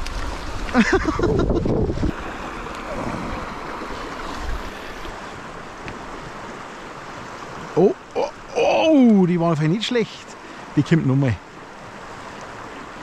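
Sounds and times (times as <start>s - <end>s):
wind buffeting microphone: 0.0s - 5.2s
river rushing: 0.0s - 13.0s.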